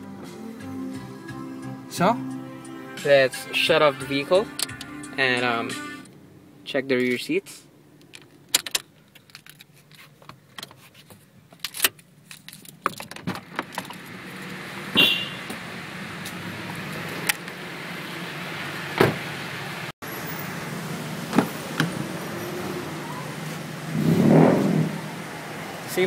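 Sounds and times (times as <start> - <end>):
car keys jangling in ignition: 8.0 - 10.8, 11.5 - 14.0
car door shutting: 18.9 - 19.3, 21.3 - 22.1.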